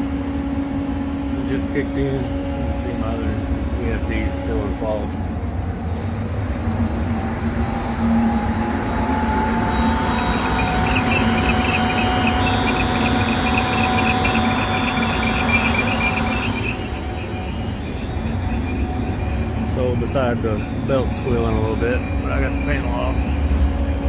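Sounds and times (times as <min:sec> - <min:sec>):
fan motor hum: 0:00.0 - 0:24.0
belts squealing: 0:08.2 - 0:24.0
fast chirping: 0:09.6 - 0:19.2.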